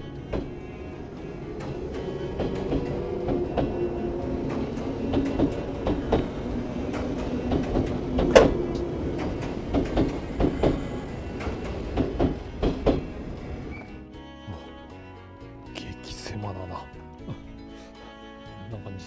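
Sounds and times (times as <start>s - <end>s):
train knocks and clatters: 0.0s - 14.0s
train rumbling: 0.0s - 15.0s.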